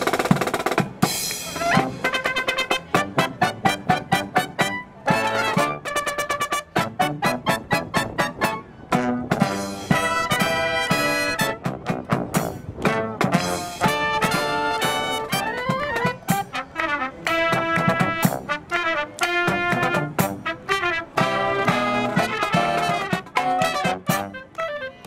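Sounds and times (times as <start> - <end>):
marching brass band playing: 0.0 - 25.0.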